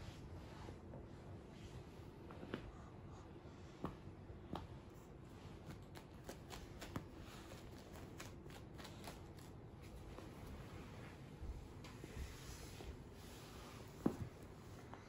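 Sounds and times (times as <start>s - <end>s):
cat claws scratching: 5.6s - 10.1s.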